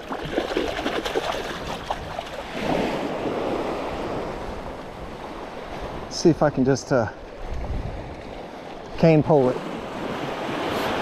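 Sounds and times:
wind buffeting microphone: 0.0 - 6.6, 7.2 - 8.9
waves washing onto beach: 0.0 - 11.0.

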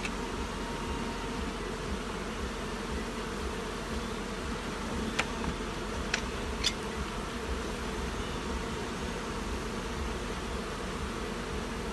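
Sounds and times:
honeybees buzzing: 0.0 - 11.9.

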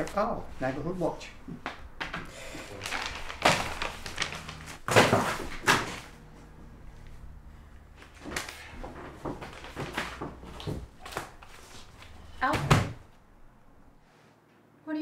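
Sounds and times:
paper rustling: 2.6 - 6.1, 8.0 - 12.3.

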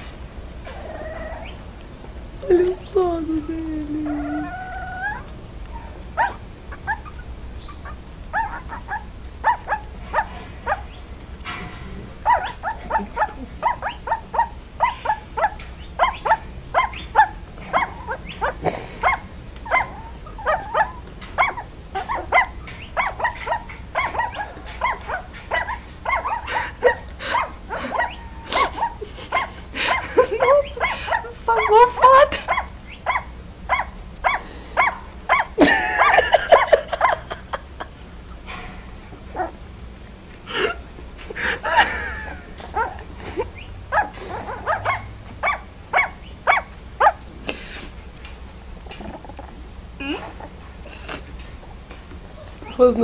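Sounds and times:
puppies yipping and crying: 0.0 - 1.7, 3.5 - 11.6, 12.2 - 37.4, 39.3 - 39.6, 41.4 - 47.2.

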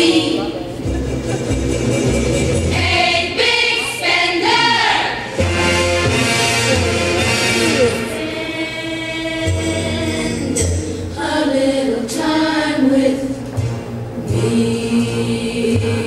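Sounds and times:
voices singing: 0.0 - 0.8, 2.6 - 5.5, 6.5 - 13.6, 14.2 - 16.0
low bass: 0.8 - 2.8.

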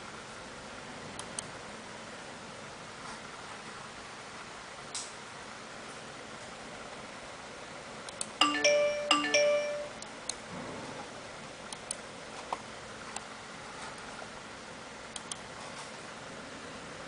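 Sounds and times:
two-note rising chime: 8.4 - 10.0.

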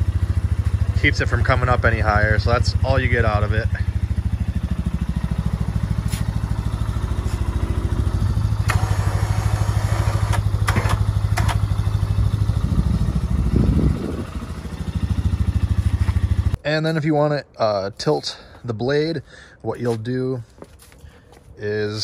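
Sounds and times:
engine idling: 0.0 - 16.6.

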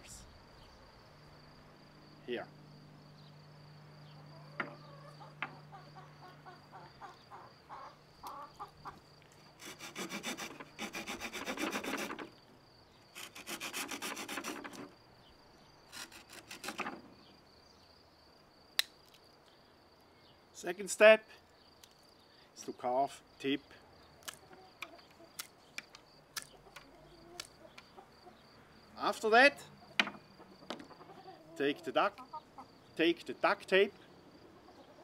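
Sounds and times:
saw cutting through branch: 9.6 - 12.3, 13.1 - 14.9, 15.9 - 17.0.

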